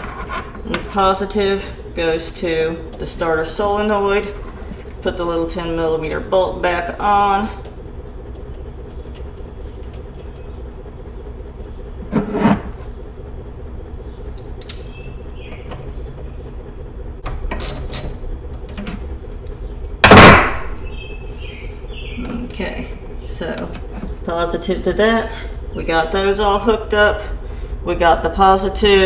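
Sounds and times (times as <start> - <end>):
steady low hum: 0.0 - 29.0
sharp loud knock: 20.0 - 20.6.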